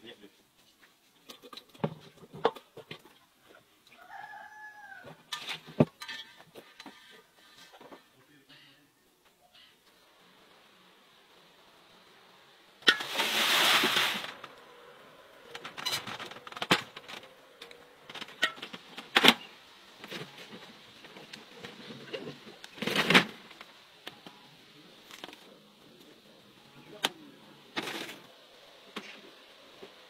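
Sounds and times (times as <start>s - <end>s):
noisy bursts: 10.0s - 30.0s.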